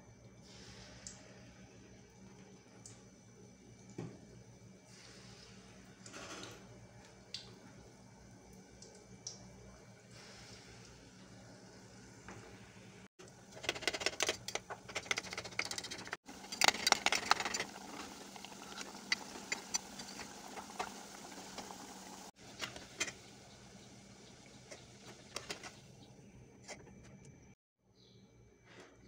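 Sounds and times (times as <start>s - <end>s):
fritters sizzling in hot oil: 16.2s - 26.0s.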